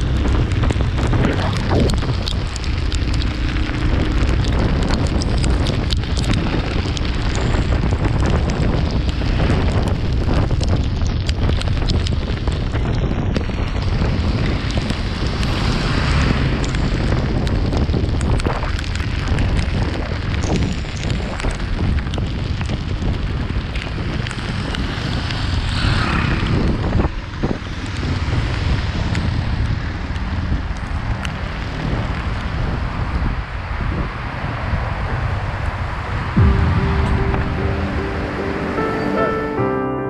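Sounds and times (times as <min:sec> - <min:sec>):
wind buffeting microphone: 0:00.0 - 0:37.7
tyres hissing on wet road: 0:13.6 - 0:36.4.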